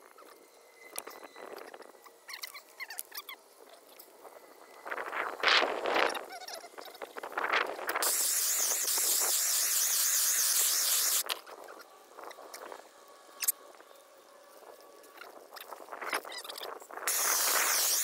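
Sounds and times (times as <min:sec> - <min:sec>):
loud fluttering hiss: 0:07.1 - 0:16.1, 0:16.7 - 0:18.0.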